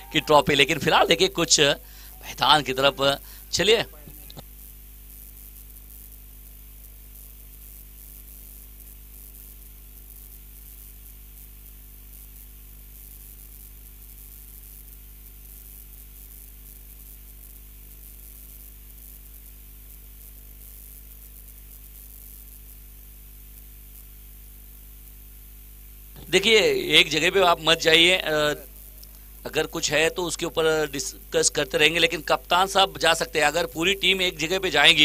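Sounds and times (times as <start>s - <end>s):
faint steady tones: 0.0s - 4.4s, 26.2s - 35.0s
electrical hiss: 0.0s - 35.0s.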